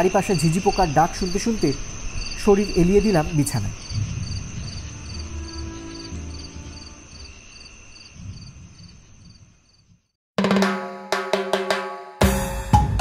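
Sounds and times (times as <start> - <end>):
crickets chirping: 0.0 - 10.2
music with drums: 10.4 - 13.0.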